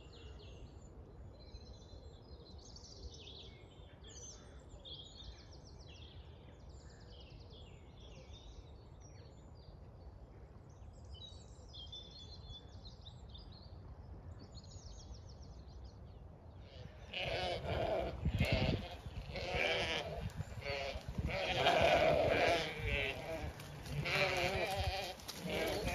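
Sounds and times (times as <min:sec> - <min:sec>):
songbirds trilling and chirping: 0:00.0 - 0:25.9
low wind rumble: 0:13.3 - 0:25.9
sheep bleating: 0:16.7 - 0:25.9.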